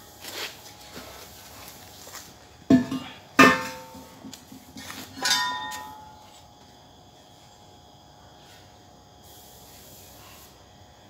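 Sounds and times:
ringing metal knock: 2.7s - 4.1s, 5.2s - 6.2s
steel parts clinking: 5.1s - 6.2s.

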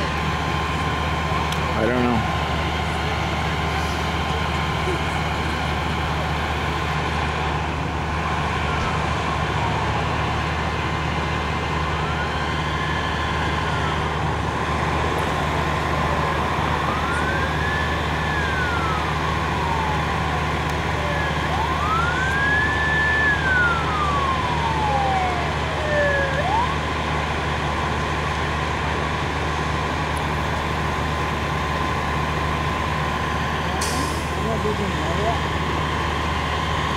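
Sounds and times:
fire engines idling: 0.0s - 36.9s
fire engine siren winding: 11.7s - 14.4s, 15.1s - 27.0s.

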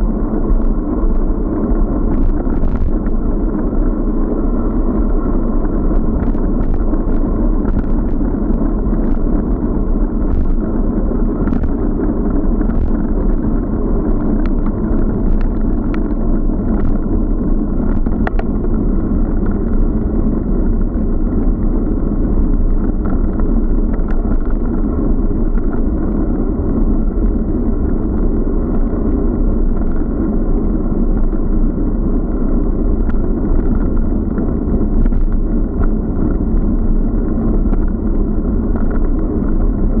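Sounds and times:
wind and road rumble: 0.0s - 40.0s
small clicks and knocks: 11.4s - 11.7s, 14.4s - 17.0s, 17.8s - 18.6s.

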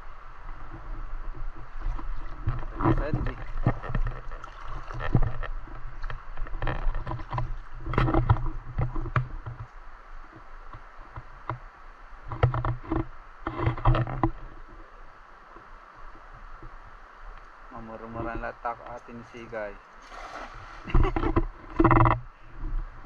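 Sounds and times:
wind rumble on microphone: 0.0s - 23.0s
river water splashing against rocks: 0.2s - 9.4s, 19.9s - 21.6s.

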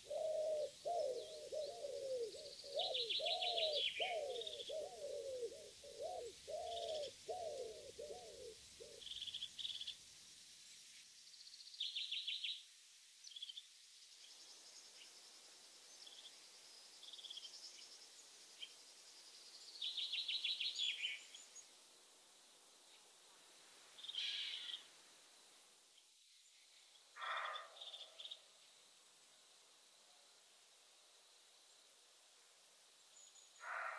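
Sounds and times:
woodpigeons cooing: 0.0s - 9.1s
small birds chirping and trilling: 0.0s - 10.0s.

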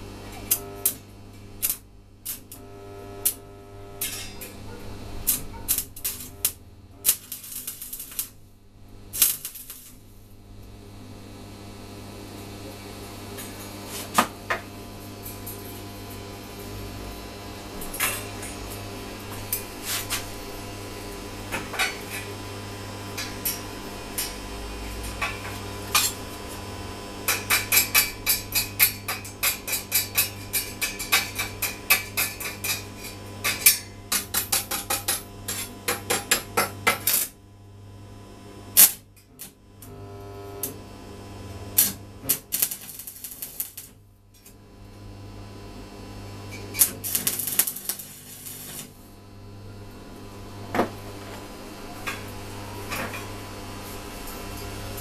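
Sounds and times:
tack weld hissing: 5.2s - 8.4s, 9.1s - 10.0s, 41.8s - 43.9s, 46.7s - 49.0s.

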